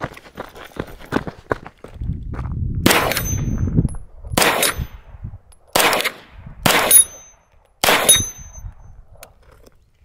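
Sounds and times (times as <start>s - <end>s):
pistol shots: 2.9s - 3.4s, 4.4s - 4.8s, 5.7s - 7.2s, 7.8s - 8.4s
high metallic ring: 3.2s - 3.8s, 6.9s - 7.5s, 8.1s - 8.8s.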